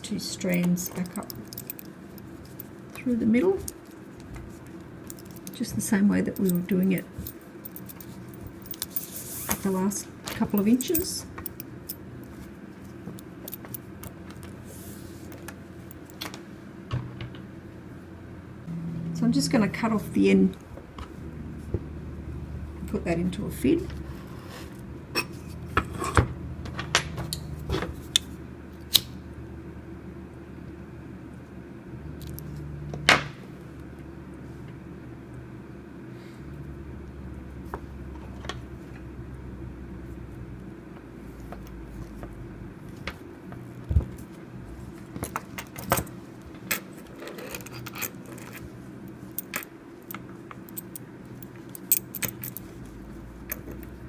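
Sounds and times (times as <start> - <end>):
steady low hum: 0.0 - 54.0
small metal clicks and clinks: 49.4 - 52.7.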